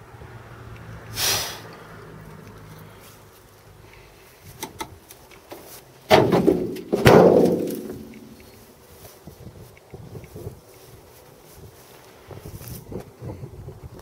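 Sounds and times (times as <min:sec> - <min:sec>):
car bonnet shutting with metallic bangs: 0:06.1 - 0:08.3.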